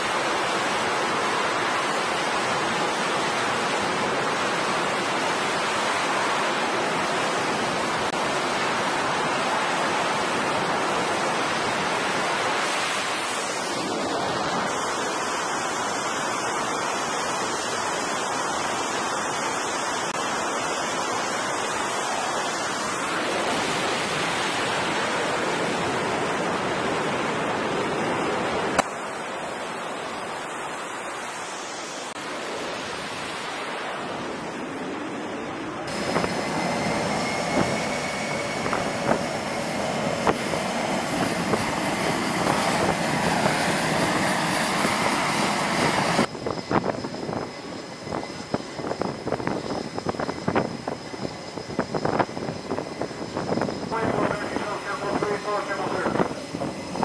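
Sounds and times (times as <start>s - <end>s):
jet engines rushing: 0.0s - 57.0s.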